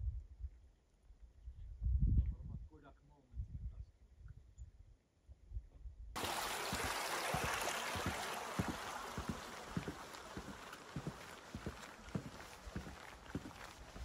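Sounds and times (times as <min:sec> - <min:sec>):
footsteps on a trail: 0:06.2 - 0:14.0
steady rushing hiss: 0:06.2 - 0:14.0.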